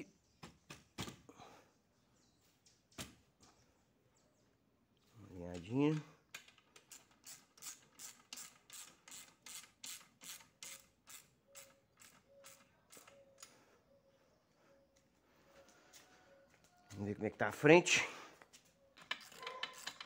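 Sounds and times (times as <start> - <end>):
ratchet wrench rasping: 6.8 - 13.5, 19.0 - 20.0.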